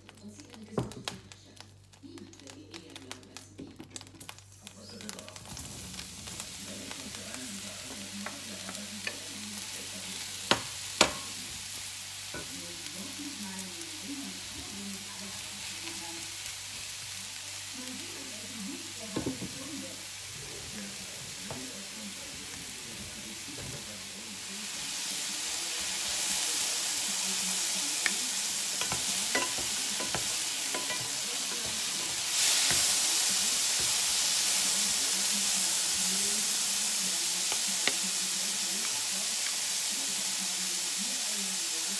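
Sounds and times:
mushrooms sizzling in a frying pan: 0.0 - 41.9
wooden spatula stirring: 28.0 - 34.4.

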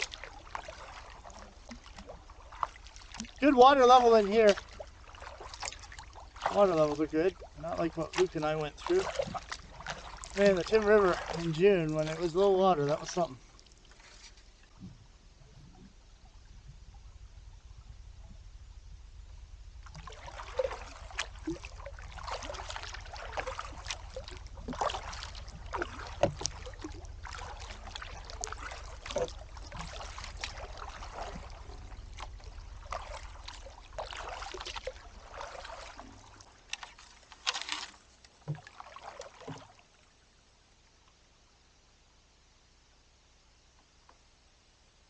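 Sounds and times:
paddle strokes in water: 0.0 - 41.2
paddle knocks: 8.0 - 12.2, 22.2 - 39.8.

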